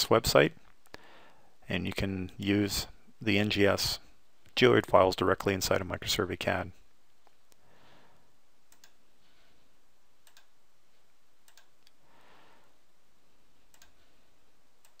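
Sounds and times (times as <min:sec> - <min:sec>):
faint steady hiss: 0:00.0 - 0:15.0
computer mouse clicking: 0:08.7 - 0:09.0, 0:10.2 - 0:10.5, 0:11.4 - 0:12.0, 0:13.7 - 0:14.0.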